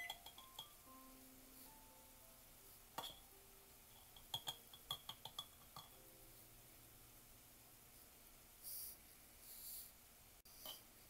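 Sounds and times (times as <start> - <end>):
metal spoon clinking on glass jar: 0.0 - 0.8, 4.0 - 6.0.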